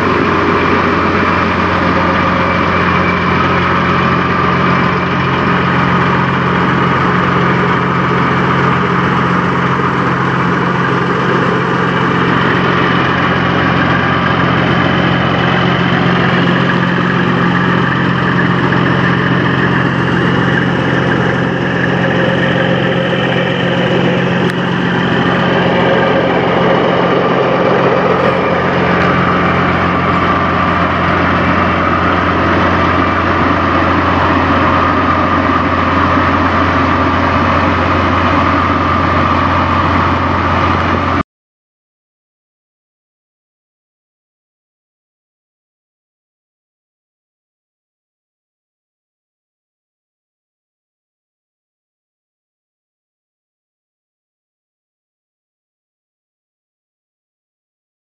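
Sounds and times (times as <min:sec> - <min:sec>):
diesel truck engine idling: 0:00.0 - 0:41.2.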